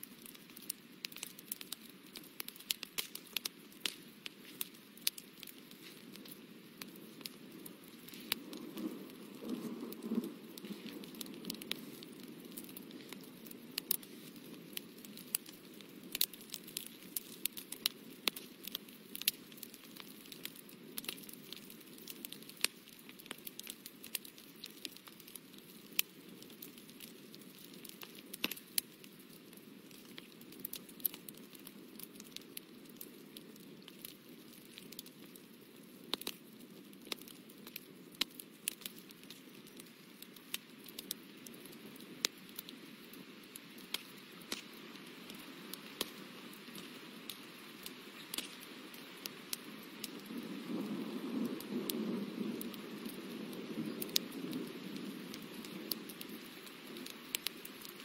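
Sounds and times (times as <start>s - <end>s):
soft rustle of brush on paper: 3.8s - 13.2s, 13.9s - 14.5s.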